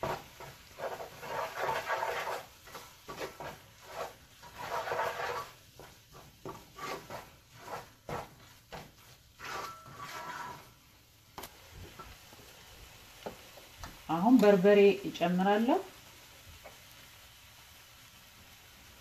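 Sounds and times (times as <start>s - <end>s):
wooden spoon scraping a pot: 0.0s - 10.8s.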